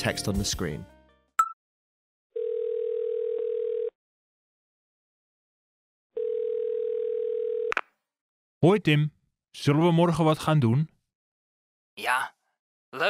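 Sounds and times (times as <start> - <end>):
telephone ringing tone: 2.4 - 4.0, 6.2 - 7.7.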